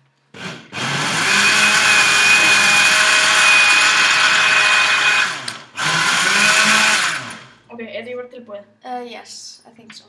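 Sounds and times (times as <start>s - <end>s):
blender running with high whine: 0.4s - 7.6s.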